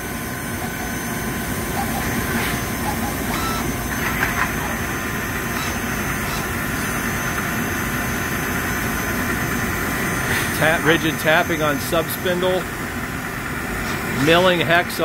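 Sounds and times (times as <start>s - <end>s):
faint steady whine: 0.0s - 15.0s
lathe spindle hum: 0.0s - 15.0s
harsh cutting sounds: 0.5s - 7.5s.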